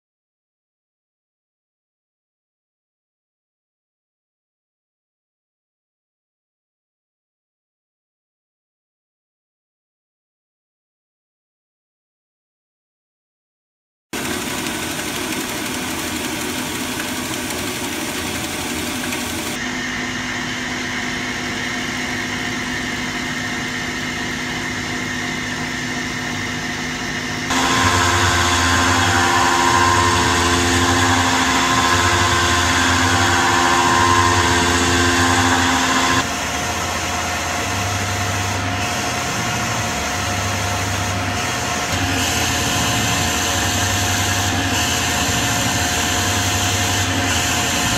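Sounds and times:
milling machine cutting metal: 14.2 - 47.9.

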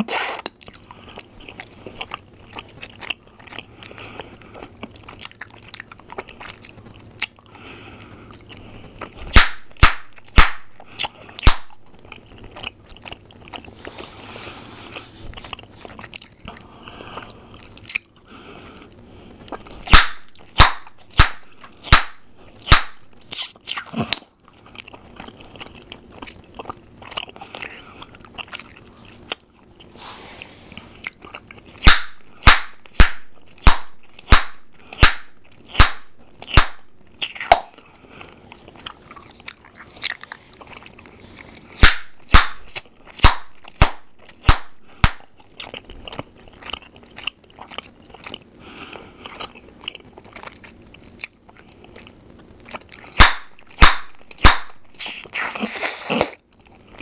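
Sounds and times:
gum chewing mouth sounds: 0.0 - 57.0
bubble gum pops: 9.3 - 10.7, 11.4 - 11.8, 19.9 - 23.1, 31.8 - 37.7, 41.8 - 45.2, 53.2 - 54.8.

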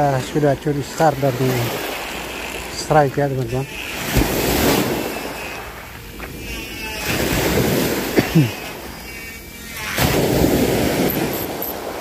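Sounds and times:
small waves washing onto beach: 0.0 - 6.3, 7.0 - 8.9.

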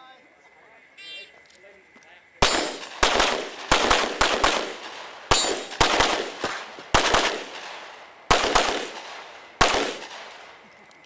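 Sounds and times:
pistol shots with short echo: 2.4 - 10.5.

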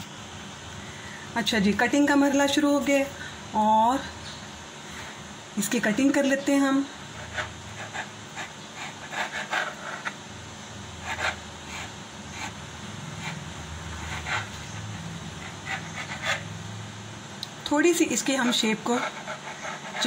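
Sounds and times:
steady low hum: 0.0 - 20.0
knife scraping dough on countertop: 7.2 - 10.2, 11.0 - 16.6, 18.1 - 20.0.

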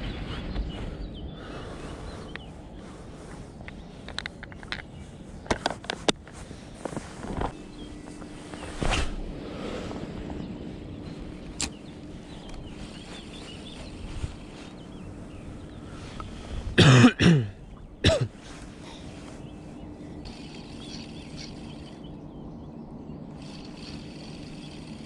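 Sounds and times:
faint steady hum: 0.0 - 25.0
man coughing: 16.8 - 18.4.

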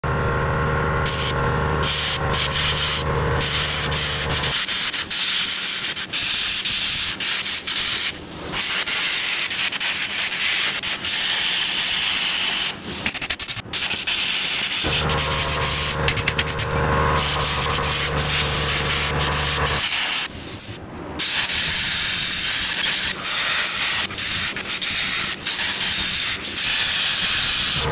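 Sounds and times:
angle grinder grinding steel: 0.0 - 4.6, 14.8 - 19.8
low steady hum: 14.9 - 19.8.

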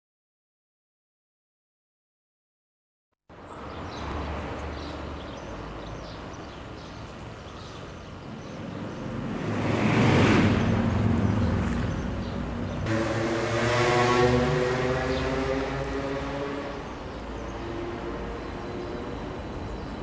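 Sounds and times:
diesel railcar engine: 10.7 - 20.0.

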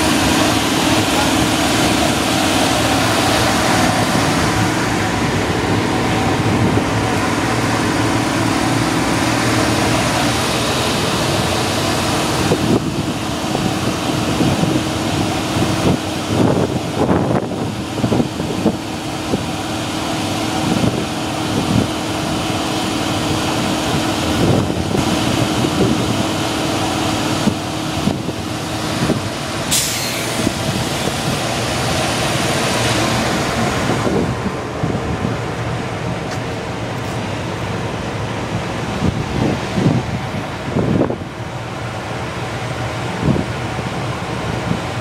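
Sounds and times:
locomotive equipment hum: 0.0 - 45.0
air release hiss: 29.7 - 30.7.

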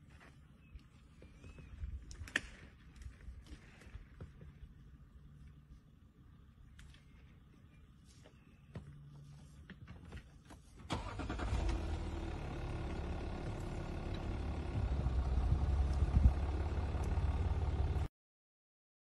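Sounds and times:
car engine running: 10.9 - 18.1.

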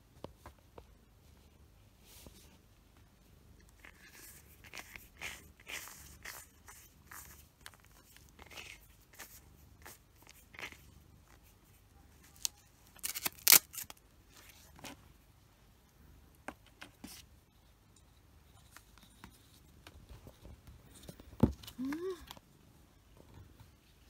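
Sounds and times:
grooming glove rasping on cat fur: 3.8 - 11.5.

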